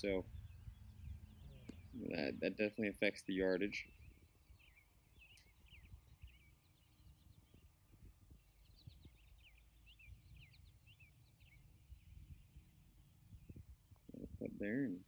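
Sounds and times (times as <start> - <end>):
birds chirping: 0.0 - 15.0
faint low rumble: 0.0 - 15.0.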